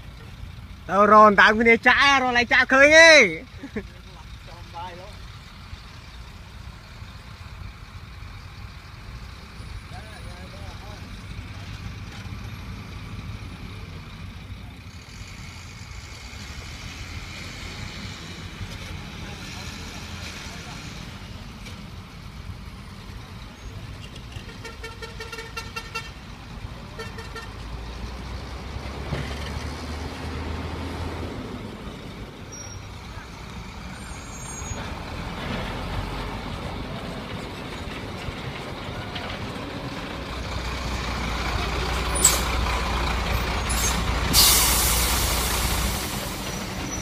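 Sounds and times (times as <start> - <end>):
diesel truck engines rumbling: 0.0 - 47.0
air brake hisses: 43.7 - 47.0.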